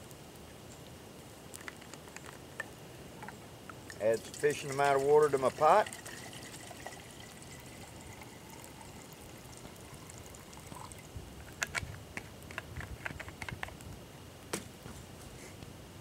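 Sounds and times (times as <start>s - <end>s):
water trickling into metal pot: 2.6s - 11.1s.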